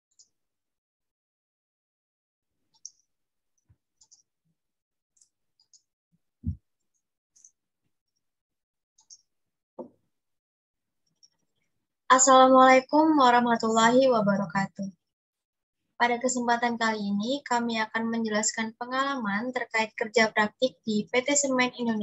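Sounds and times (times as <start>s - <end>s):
faint clicks and ticks: 2.7s - 4.3s, 5.2s - 5.9s, 6.8s - 8.3s, 9.0s - 9.3s, 11.0s - 11.7s.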